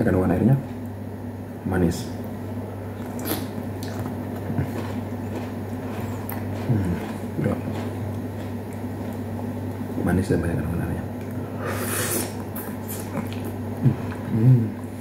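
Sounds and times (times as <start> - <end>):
person chewing fruit: 2.2 - 10.0, 11.1 - 15.0.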